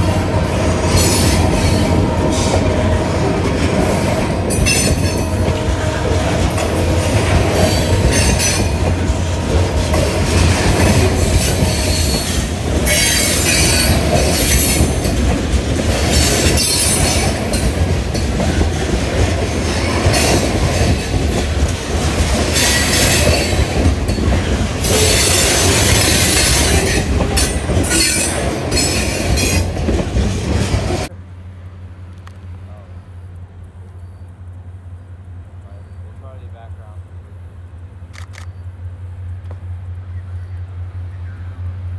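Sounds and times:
freight train wheels rumbling: 0.0s - 41.9s.

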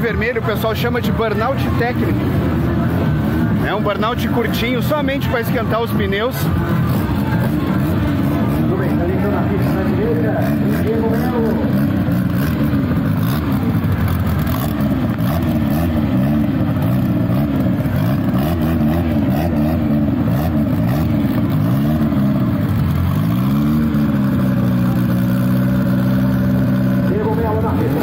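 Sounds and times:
car engine revving: 0.0s - 28.0s.

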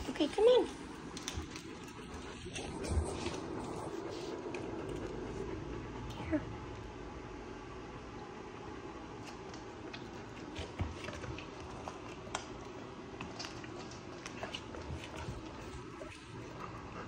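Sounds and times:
low background hum: 0.0s - 17.0s
dog chewing kibble: 0.4s - 5.5s, 9.2s - 17.0s.

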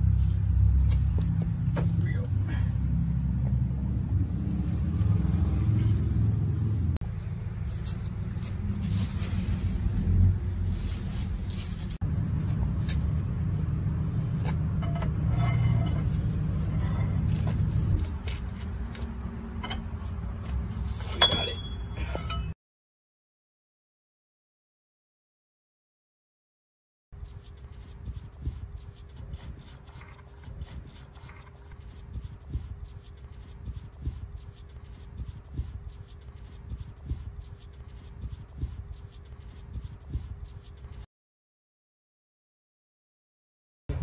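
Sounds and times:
gloved hand scraping metal: 14.4s - 19.0s.

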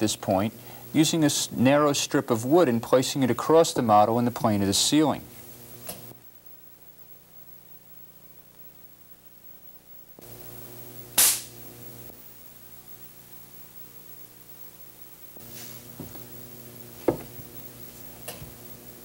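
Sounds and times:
steady electrical hum: 0.0s - 19.0s
sharp spark crack: 10.2s - 12.0s.

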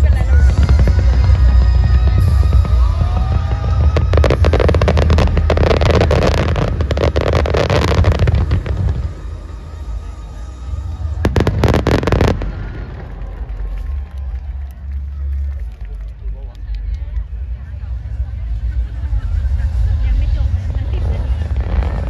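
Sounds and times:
loud music with heavy bass: 0.0s - 9.6s
fireworks crackling: 0.0s - 22.0s.

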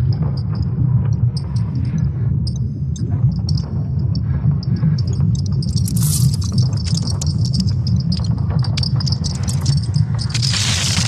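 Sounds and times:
steady low rumble: 0.0s - 11.0s
crackling clicks: 5.0s - 11.0s.

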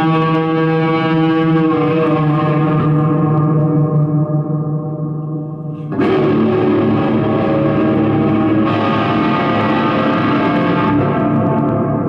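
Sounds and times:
drone with overtones: 5.8s - 12.0s.

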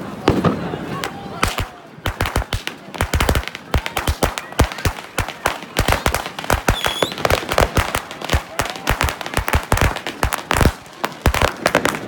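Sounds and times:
firecracker bangs and cracks: 0.2s - 12.0s
firework whistle: 5.8s - 7.8s.

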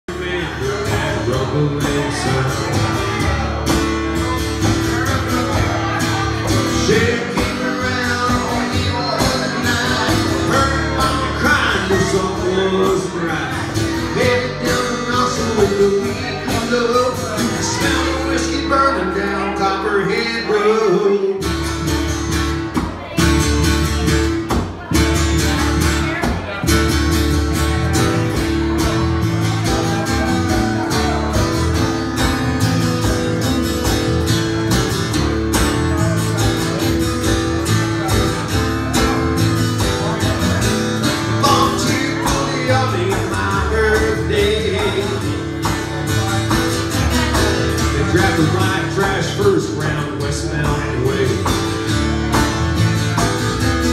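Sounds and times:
live country band playing: 0.0s - 53.9s
person singing: 0.1s - 21.7s, 37.8s - 52.5s.

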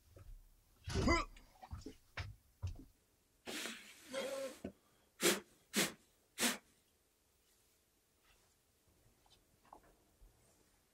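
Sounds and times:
sharp puffs of breath: 3.4s - 6.8s.

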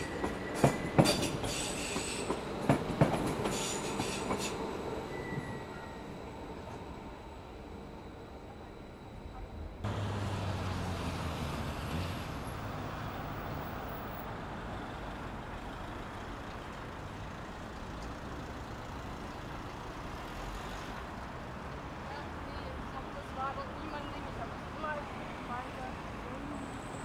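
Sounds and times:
vehicle running noise: 9.8s - 21.8s.

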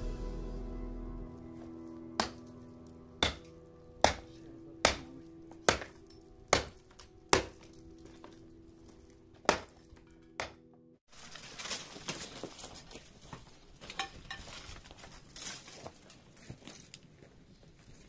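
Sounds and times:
soft held music tones: 0.0s - 9.4s
sharp chopping knocks: 2.2s - 2.4s, 3.2s - 3.4s, 4.0s - 5.1s, 5.7s - 7.6s, 9.4s - 9.8s.

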